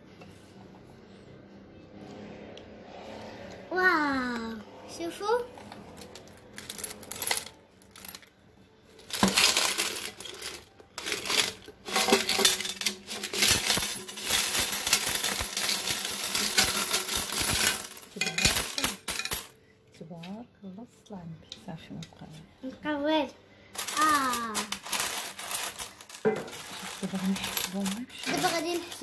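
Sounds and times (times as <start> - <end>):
coins clattering onto glass: 6.0 - 8.3, 9.0 - 19.6, 23.8 - 29.0.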